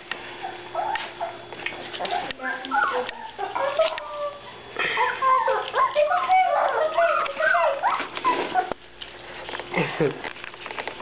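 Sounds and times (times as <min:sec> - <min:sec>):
puppies whining and yipping: 0:00.4 - 0:08.8.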